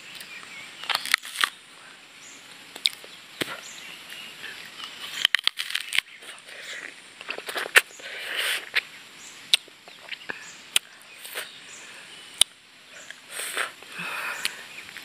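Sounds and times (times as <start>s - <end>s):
person sucking and slurping: 5.1s - 8.8s, 9.5s - 11.6s, 13.3s - 14.6s
lip clicks: 9.5s - 11.5s, 12.4s - 13.8s.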